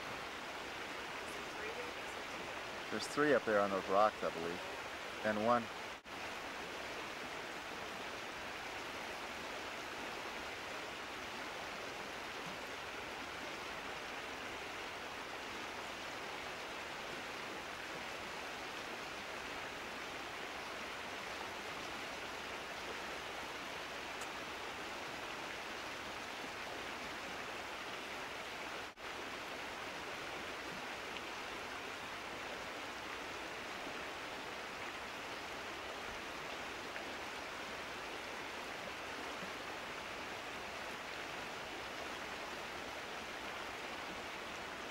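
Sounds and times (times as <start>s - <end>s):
steady background hiss: 0.0s - 44.9s.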